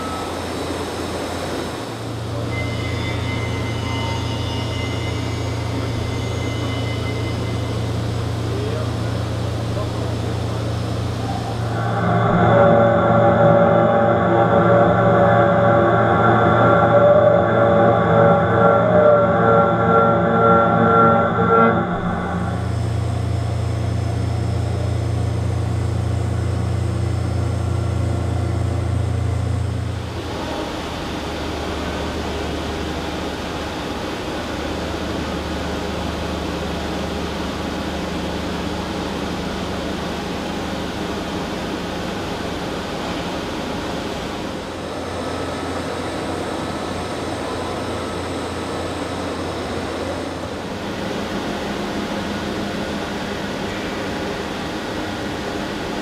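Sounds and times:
low hum: 0:00.0 - 0:56.0
milling machine noise: 0:00.0 - 0:56.0
even rushing noise: 0:10.1 - 0:23.2.

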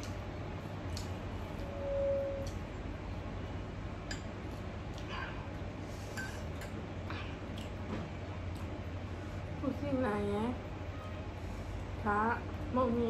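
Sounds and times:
steady low hum: 0:00.0 - 0:13.0
short steady tone: 0:01.6 - 0:02.5.

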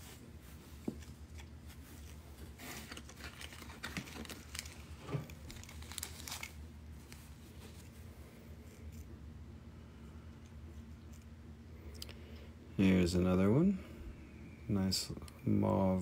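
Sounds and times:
low steady hum: 0:00.0 - 0:16.0
plastic bags crinkling: 0:01.2 - 0:07.8.

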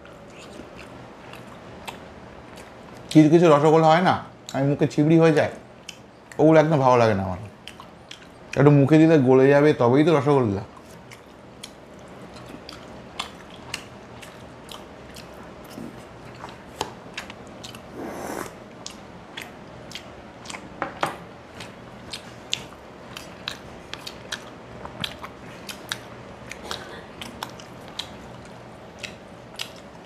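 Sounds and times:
wet chewing: 0:00.1 - 0:03.2, 0:07.6 - 0:08.7, 0:10.7 - 0:20.8, 0:21.5 - 0:30.0.

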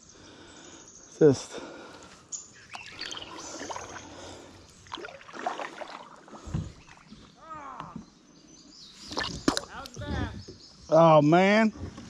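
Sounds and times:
water sloshing against kayak hull: 0:02.7 - 0:07.4.

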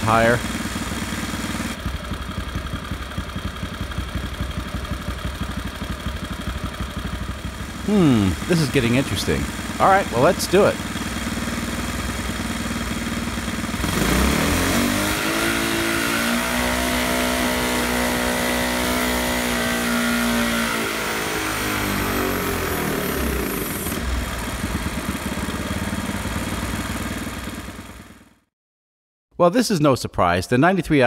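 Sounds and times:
small engine revving: 0:00.0 - 0:02.0, 0:06.7 - 0:28.2.

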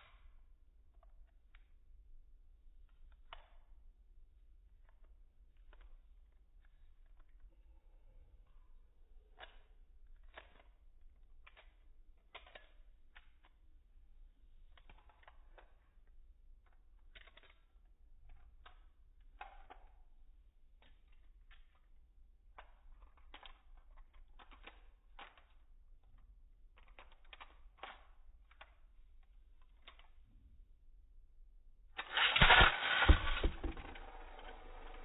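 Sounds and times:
faint clicks and taps: 0:02.6 - 0:13.8, 0:14.4 - 0:30.6
spinning top clattering in plastic stadium: 0:32.0 - 0:35.0.

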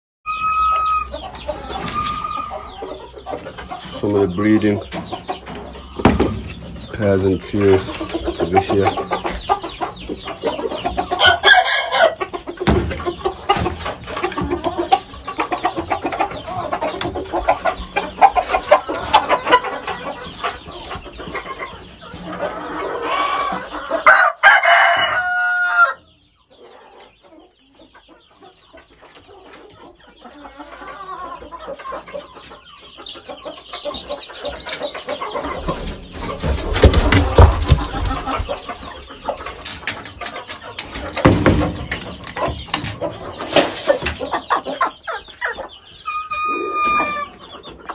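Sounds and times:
roosters clucking: 0:00.3 - 0:47.9
rooster crowing: 0:24.1 - 0:26.0.

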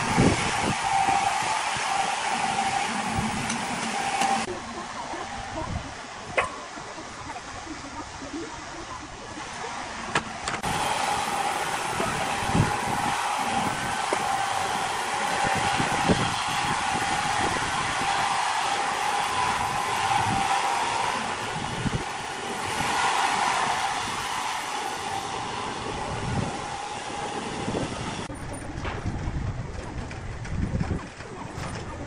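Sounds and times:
band saw whining: 0:00.0 - 0:07.2, 0:09.4 - 0:29.0.

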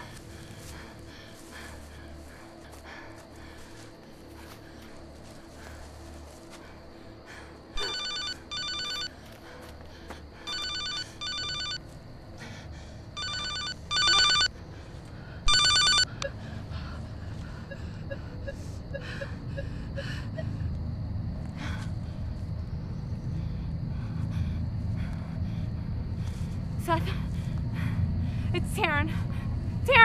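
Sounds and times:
cell phone ringing: 0:07.8 - 0:09.1, 0:10.5 - 0:11.8, 0:13.2 - 0:14.5, 0:15.5 - 0:16.1
low rumble: 0:19.3 - 0:29.9.

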